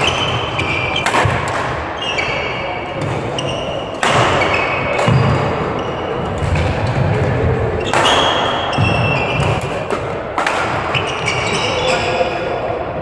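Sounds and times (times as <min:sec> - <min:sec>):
shoe squeaks on court floor: 0:00.0 - 0:01.2, 0:02.0 - 0:06.3, 0:07.8 - 0:09.9, 0:10.9 - 0:12.3
racket striking shuttlecock: 0:00.0 - 0:01.8, 0:04.0 - 0:05.5.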